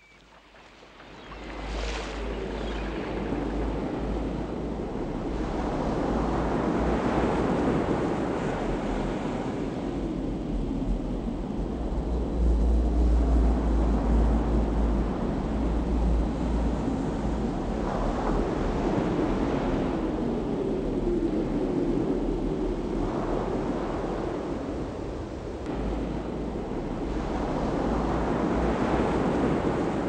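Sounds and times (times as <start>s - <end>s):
wind buffeting microphone: 0.0s - 30.0s
surf breaking on shore: 0.3s - 8.7s.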